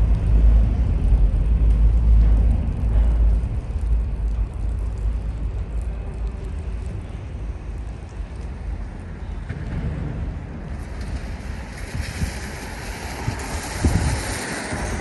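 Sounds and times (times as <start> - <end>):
distant traffic: 0.0 - 15.0
wind rumble on microphone: 0.0 - 15.0
hiss: 10.7 - 15.0.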